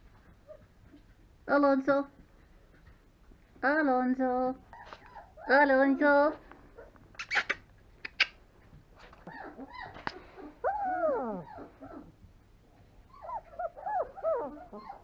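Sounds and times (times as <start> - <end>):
puppy whimpering and whining: 4.7 - 6.1, 9.2 - 12.2, 13.0 - 15.0.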